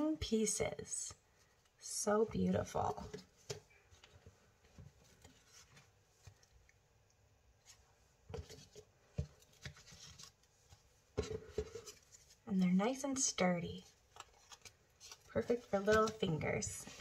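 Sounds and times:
cardboard tapping and scraping on table: 8.3s - 12.2s.

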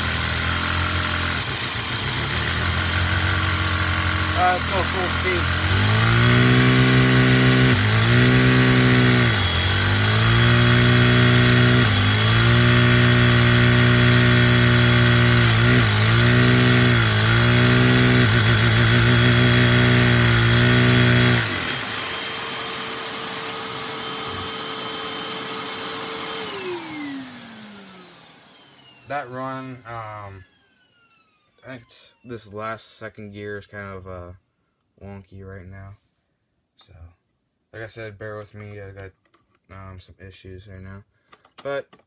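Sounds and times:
small engine buzzing: 0.0s - 31.8s.

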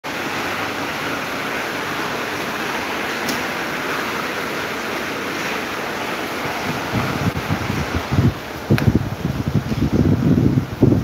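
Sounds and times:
electric fans blowing air: 0.0s - 11.0s.

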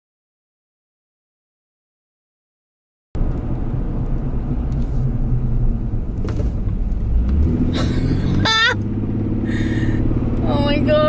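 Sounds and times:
car engine and tyre rumble: 3.2s - 11.0s.

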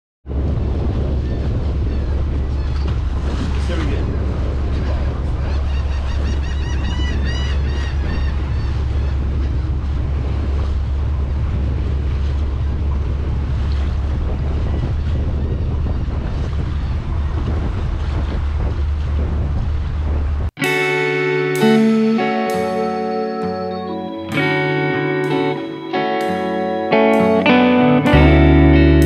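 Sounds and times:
wind buffeting microphone: 0.2s - 20.9s
boat engine rumble: 0.2s - 29.0s
water rushing past hull: 0.3s - 29.0s
high chirping notes: 20.6s - 29.0s.

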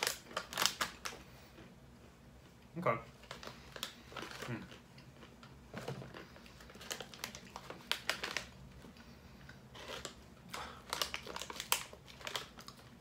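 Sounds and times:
plastic snack bag crinkling: 0.0s - 1.3s, 3.2s - 13.0s
nuts being chewed: 3.2s - 13.0s.

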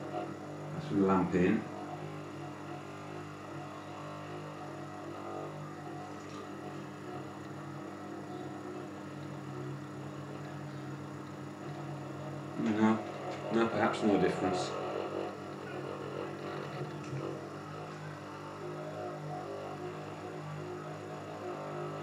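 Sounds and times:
buzzing: 0.0s - 22.0s
electric motor running: 0.0s - 22.0s
transformer humming: 0.0s - 22.0s.

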